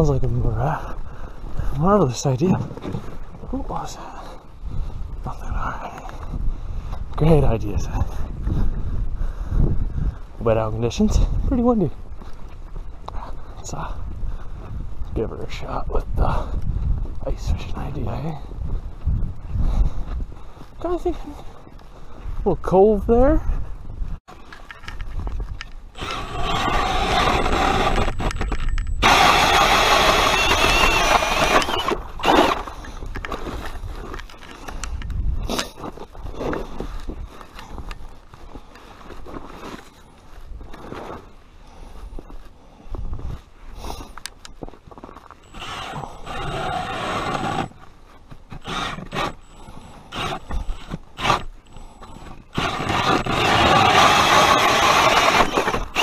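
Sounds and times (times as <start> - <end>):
power ice auger running: 26.0 - 32.8, 45.5 - 47.8, 48.5 - 56.0
plastic sled scraping through snow: 52.1 - 56.0.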